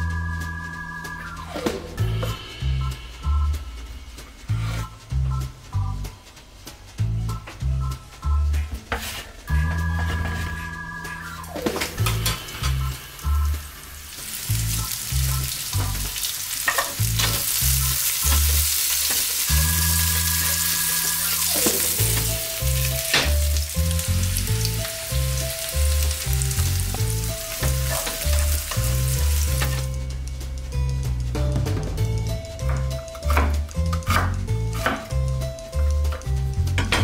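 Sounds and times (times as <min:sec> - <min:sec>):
background music with bass line: 0:00.0 - 0:37.0
food sizzling in a pan: 0:12.0 - 0:31.2.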